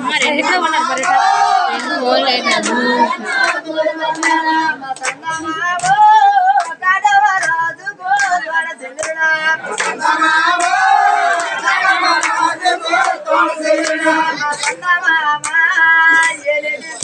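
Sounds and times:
high-pitched voice chanting: 0:01.7 - 0:03.4.

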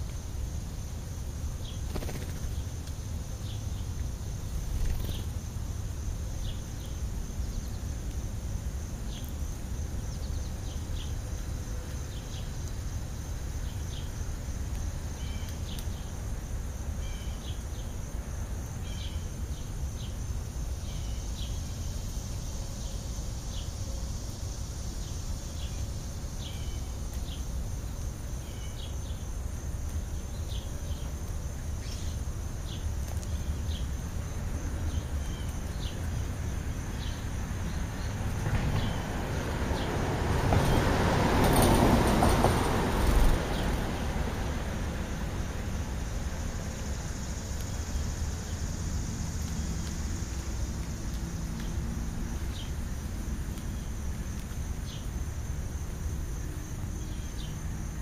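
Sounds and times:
high insect drone: 0:00.0 - 0:58.0
sparrows chirping: 0:15.1 - 0:16.2, 0:17.0 - 0:18.0, 0:20.8 - 0:23.8, 0:24.9 - 0:27.5, 0:28.3 - 0:29.4, 0:31.8 - 0:34.0, 0:34.8 - 0:39.9, 0:56.9 - 0:57.8.

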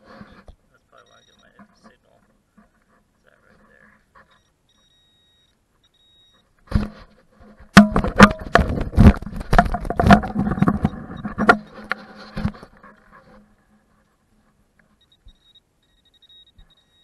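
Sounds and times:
irregular knocks and rustling: 0:00.0 - 0:04.9, 0:05.7 - 0:15.4
thump: 0:06.7 - 0:07.1, 0:07.7 - 0:10.8.

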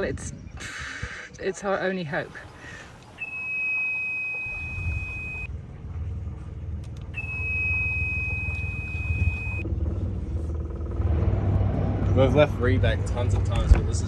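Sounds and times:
diesel engine rumble: 0:00.0 - 0:14.0
warning buzzer beeping: 0:03.2 - 0:05.5, 0:07.2 - 0:09.6.

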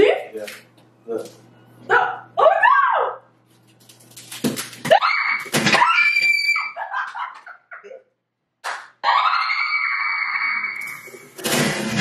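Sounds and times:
people screaming: 0:04.9 - 0:06.8, 0:09.0 - 0:11.3
people laughing: 0:06.6 - 0:08.0.

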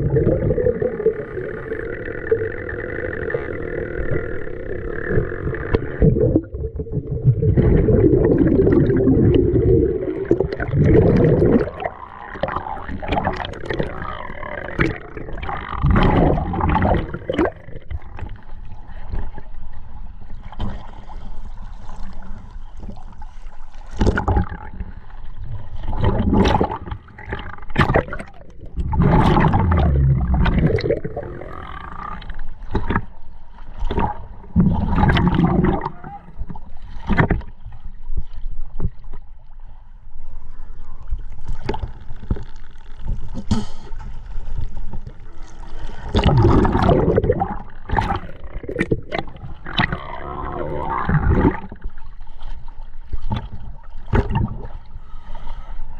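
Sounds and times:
diver exhaling bubbles underwater: 0:00.0 - 0:18.4, 0:25.8 - 0:32.9, 0:33.9 - 0:36.7, 0:45.6 - 0:52.0
crackling bubbles: 0:00.0 - 0:19.5, 0:20.3 - 0:39.6, 0:40.7 - 0:55.0.

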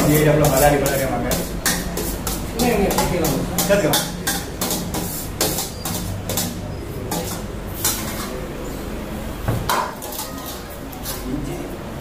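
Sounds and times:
hand scraping food on steel plate: 0:00.0 - 0:08.4.

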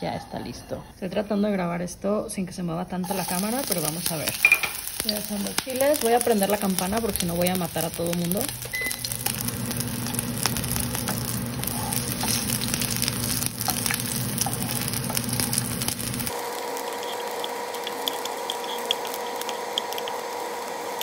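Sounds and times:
range hood humming: 0:02.8 - 0:21.0
chiles sizzling in oil: 0:03.0 - 0:21.0
wooden spatula stirring: 0:09.2 - 0:16.3.

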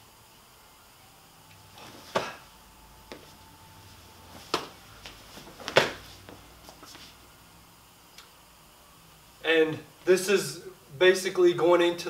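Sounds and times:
hand slapping foot: 0:01.8 - 0:02.4, 0:04.3 - 0:07.1
shoes scuffing on hard floor: 0:03.1 - 0:07.2.

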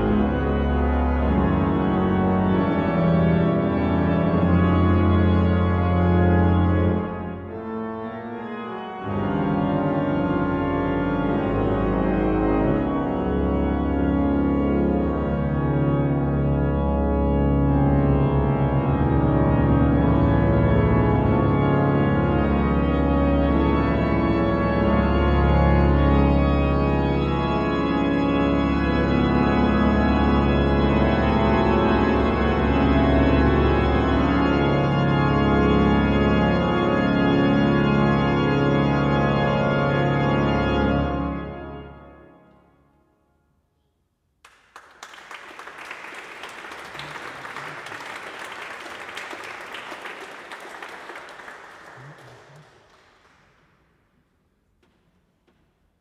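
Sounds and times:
pipe organ playing: 0:00.0 - 0:42.9, 0:45.0 - 0:53.4
audience applauding: 0:44.4 - 0:53.8.

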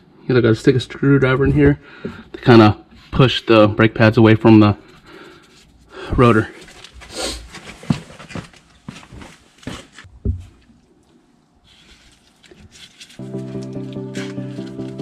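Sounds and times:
background music: 0:13.2 - 0:15.0.

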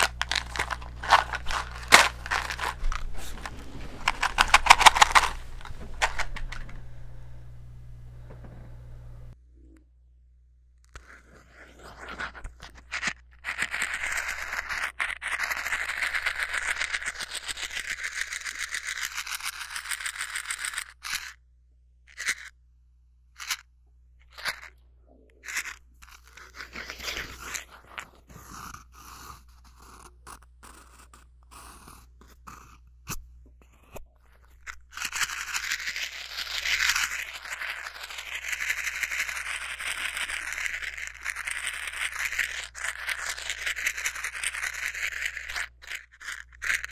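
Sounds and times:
matches rattling in box: 0:00.0 - 0:06.8, 0:11.0 - 0:21.4, 0:22.1 - 0:22.5, 0:24.3 - 0:24.7, 0:25.4 - 0:28.7, 0:34.3 - 0:46.9.

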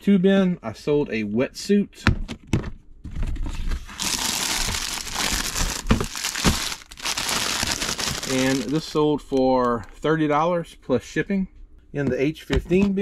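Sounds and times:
plastic bag crinkling: 0:03.8 - 0:10.0.

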